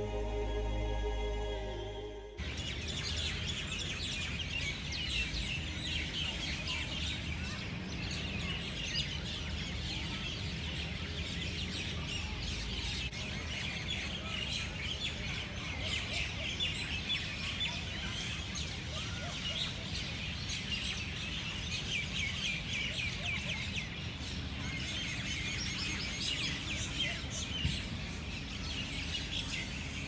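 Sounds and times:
low background rumble: 0.0s - 2.4s
music: 0.0s - 2.4s.

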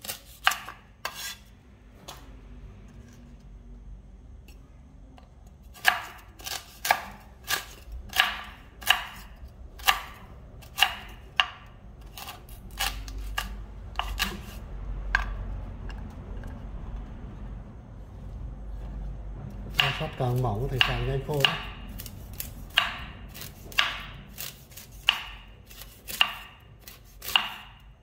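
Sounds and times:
knife chopping fruit: 0.0s - 1.4s, 5.7s - 16.5s, 19.7s - 27.8s.

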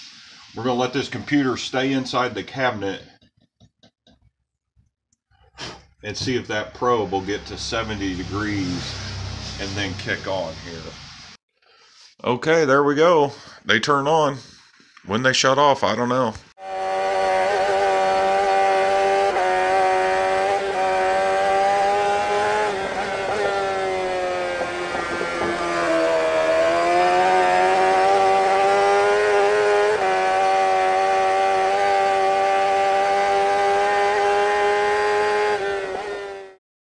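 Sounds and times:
engine at high revs: 6.2s - 10.8s, 16.6s - 36.6s.

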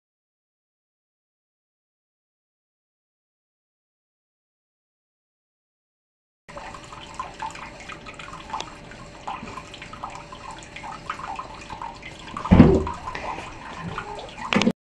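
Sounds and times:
tap water splashing into basin: 6.5s - 14.7s
loud deep thump: 12.5s - 13.0s.

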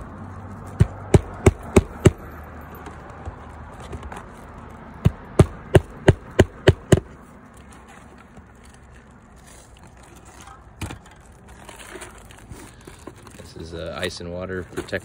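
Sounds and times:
hammer striking nails: 0.8s - 2.3s, 5.0s - 7.1s.

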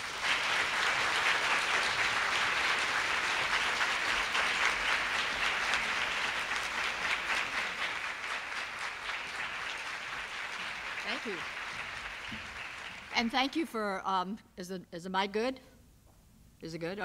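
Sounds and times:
audience applauding: 0.0s - 13.6s.

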